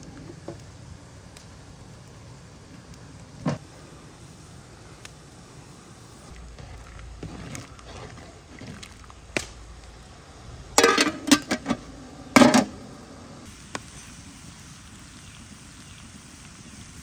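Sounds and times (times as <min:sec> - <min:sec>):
metal ladle knocking cookware: 0:10.8 - 0:11.8.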